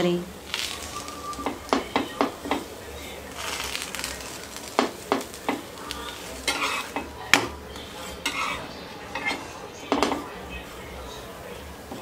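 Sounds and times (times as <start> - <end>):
light sizzle of frying: 0.0 - 12.0
spatula tapping and scraping on pan: 1.4 - 2.7, 4.8 - 10.2.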